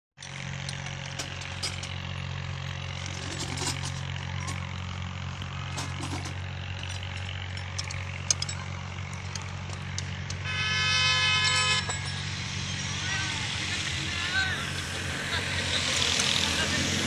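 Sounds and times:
engine idling: 0.2s - 17.0s
light metallic clicks and knocks: 5.7s - 10.4s.

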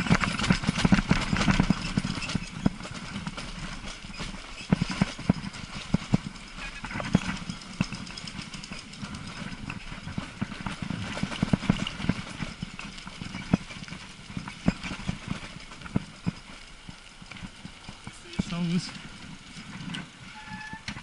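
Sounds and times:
bike rattling on cobblestones: 0.0s - 21.0s
tyre and wind rumble: 0.0s - 21.0s.

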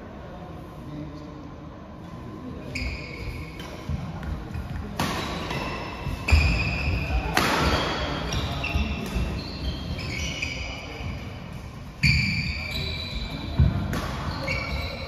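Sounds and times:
shoes squeaking on court: 2.7s - 15.0s
racket striking shuttlecock: 7.3s - 8.0s, 13.6s - 14.6s.

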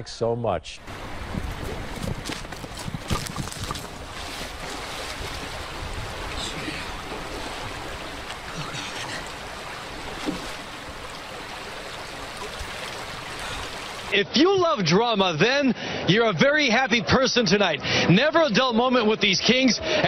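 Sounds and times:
creek rushing: 0.8s - 14.2s
knocks and bumps: 1.3s - 5.5s.

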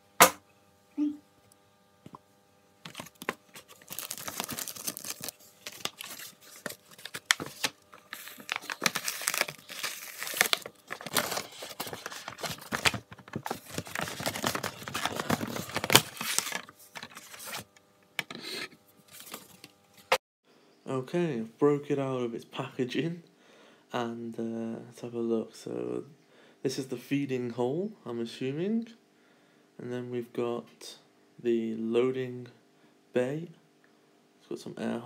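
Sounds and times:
plastic bag crinkling and tearing: 2.8s - 17.7s.

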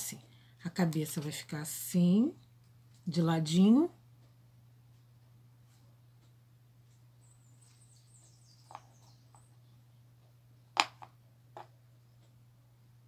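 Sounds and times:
steady low hum: 0.0s - 13.0s
faint high chirping: 7.1s - 10.1s.

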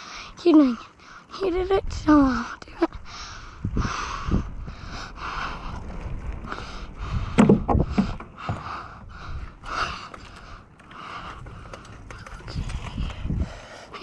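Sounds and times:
rider breathing quickly: 3.0s - 14.0s
bike thumping and rattling: 5.8s - 13.6s.

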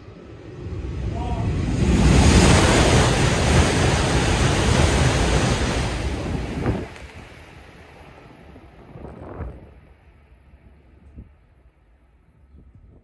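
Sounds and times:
high-speed train passing: 0.0s - 12.5s.

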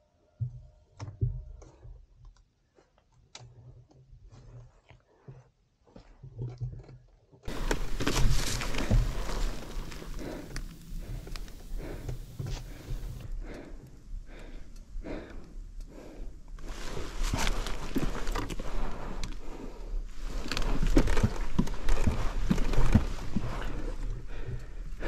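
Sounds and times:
footsteps rustling through leaves: 7.5s - 11.8s
twigs crackling and snapping: 7.5s - 13.2s, 20.2s - 23.8s
heavy breathing: 7.5s - 25.0s.

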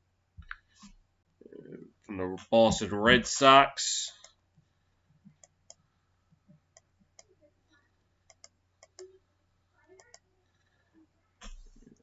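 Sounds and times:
computer mouse clicks: 8.3s - 9.1s, 10.0s - 10.2s.

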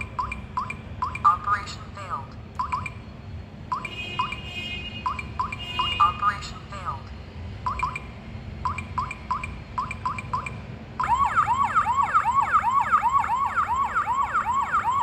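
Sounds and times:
keypad beeping: 0.0s - 1.4s, 2.6s - 3.0s, 3.7s - 4.4s, 5.0s - 6.2s, 7.7s - 11.2s
warbling alarm siren: 8.7s - 15.0s.

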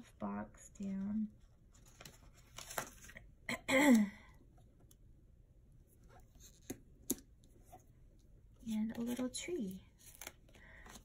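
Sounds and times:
paper rustling: 1.7s - 3.2s.

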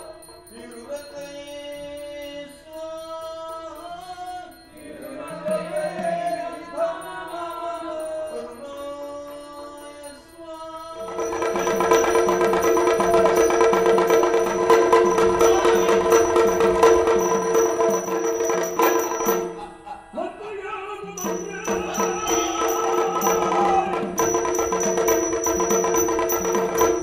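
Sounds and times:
small cymbals ringing: 0.0s - 20.2s, 21.2s - 27.0s
drum beat: 4.9s - 8.3s, 11.0s - 19.8s, 21.0s - 27.0s.

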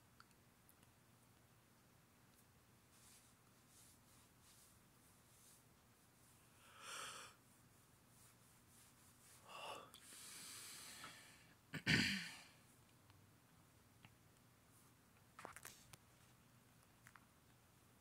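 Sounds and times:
person breathing: 6.4s - 7.4s, 9.4s - 11.6s.

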